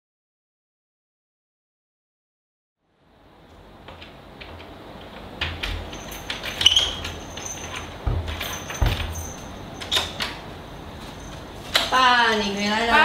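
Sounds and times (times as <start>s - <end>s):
door lock clicking and rattling: 4.4s - 10.4s
keys jangling: 5.7s - 10.4s.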